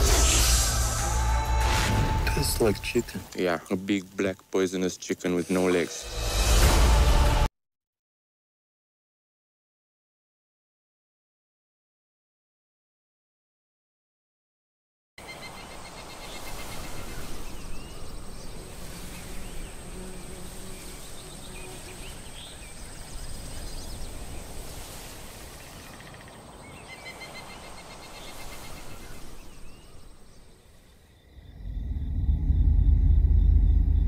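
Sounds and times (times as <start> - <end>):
bird chirps and trills: 15.2 - 34.0
high insect drone: 15.4 - 26.2.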